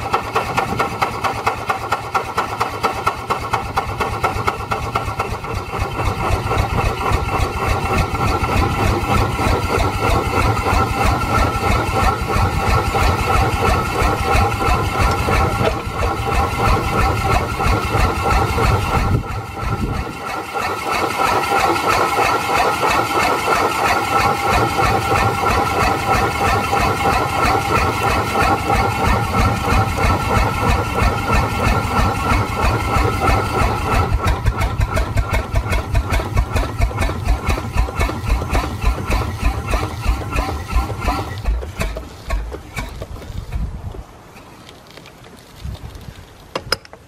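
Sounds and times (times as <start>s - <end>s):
steam engine exhaust beats: 0.0s - 44.4s.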